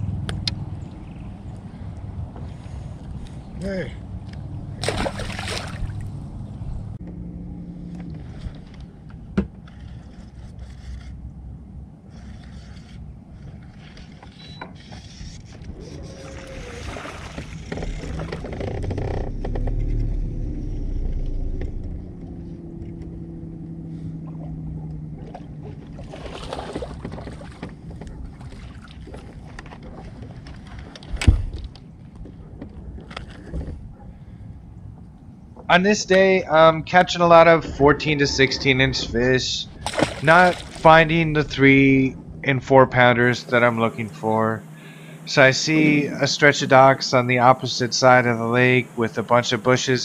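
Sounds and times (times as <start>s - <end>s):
wind rumble on microphone: 0.0s - 35.7s, 36.3s - 43.5s
water noise: 2.7s - 10.2s, 15.0s - 50.0s
electric trolling motor hum: 14.8s - 28.4s
wind noise: 26.0s - 43.9s.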